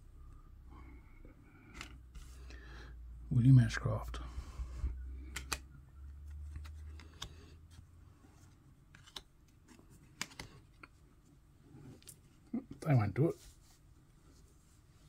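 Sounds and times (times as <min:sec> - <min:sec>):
trading cards shuffling: 0:05.2 - 0:11.0.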